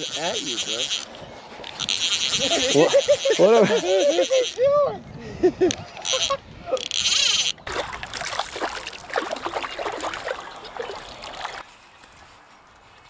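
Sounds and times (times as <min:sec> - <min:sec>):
fish splashing in water: 0:07.6 - 0:11.6.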